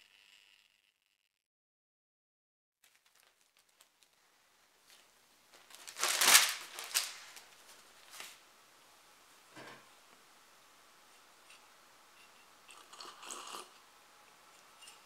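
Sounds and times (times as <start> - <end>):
newspaper rustling: 2.8 - 8.4.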